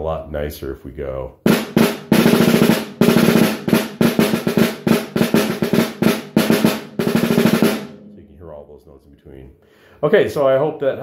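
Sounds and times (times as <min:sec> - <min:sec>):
snare drum rolls: 0:01.4 - 0:08.1.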